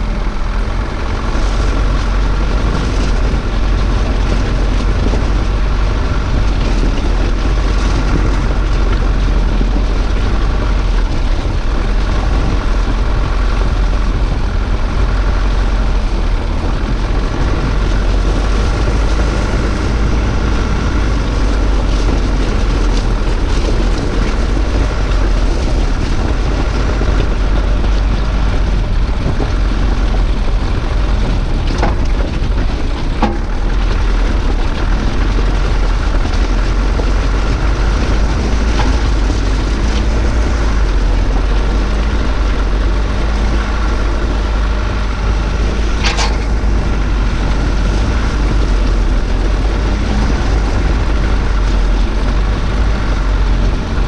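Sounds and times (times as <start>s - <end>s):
vehicle engine and tyres on gravel: 0.0s - 54.0s
wind rumble on microphone: 0.0s - 54.0s
stones striking vehicle: 45.6s - 51.6s.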